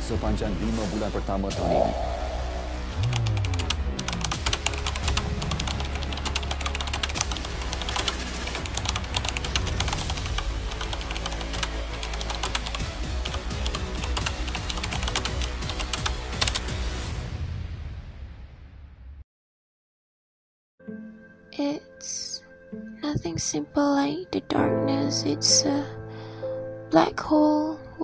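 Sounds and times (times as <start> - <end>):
background music with low drone: 0.0 - 17.4, 20.8 - 28.0
fast keyboard typing: 3.0 - 16.7.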